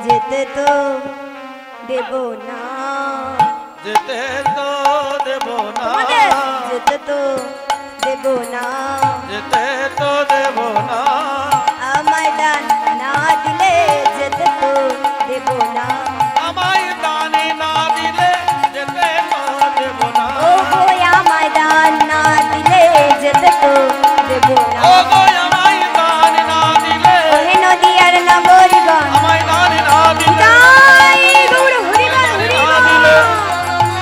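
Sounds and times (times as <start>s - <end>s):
wavering melodic line: 28.5s - 34.0s.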